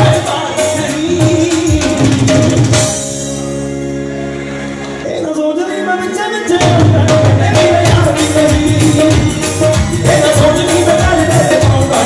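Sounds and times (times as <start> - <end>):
person singing: 0.0 - 2.8, 5.0 - 12.0
tabla and drum beating: 0.0 - 3.4, 6.5 - 12.0.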